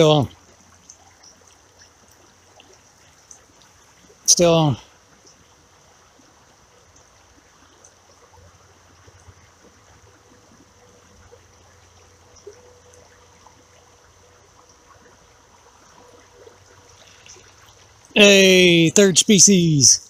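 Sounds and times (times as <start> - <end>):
creek water running: 0.0 - 20.0.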